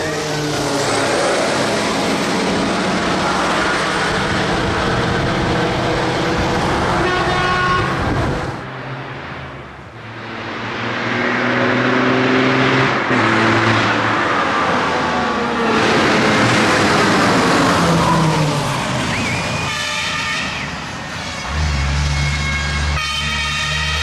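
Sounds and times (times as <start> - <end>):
truck engine passing by: 0.0 - 24.0.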